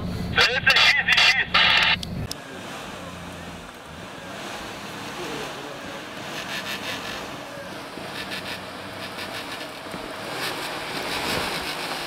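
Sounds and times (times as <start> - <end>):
vehicle engine running: 0.0 - 12.0
rushing and clattering: 6.0 - 12.0.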